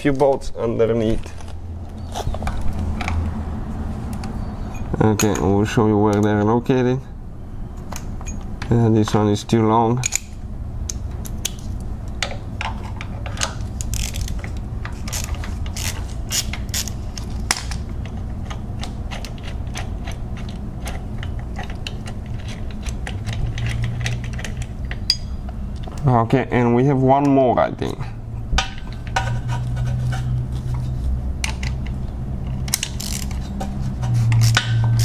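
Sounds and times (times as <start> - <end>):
steady low hum: 0.0 - 35.0
hand ratchet clicking: 13.8 - 17.8, 31.4 - 35.0.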